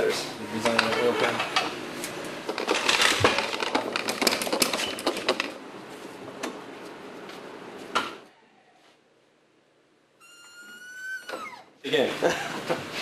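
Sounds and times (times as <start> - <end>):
clatter of clicks and knocks: 2.5 - 5.6.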